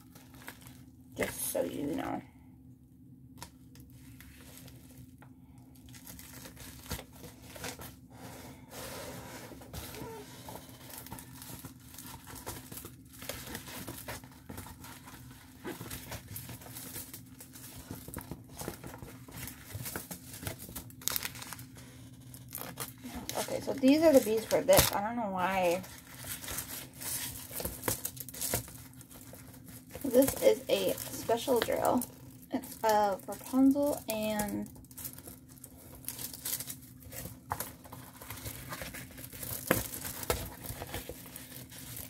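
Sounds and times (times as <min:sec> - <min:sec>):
plastic packaging crinkling and tearing: 0:00.0 - 0:02.1, 0:03.4 - 0:08.1, 0:09.7 - 0:42.0.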